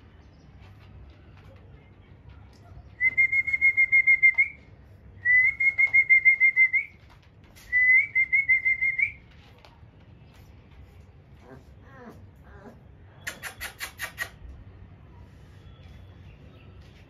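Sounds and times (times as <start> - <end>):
whistled trills: 3.0 - 4.6.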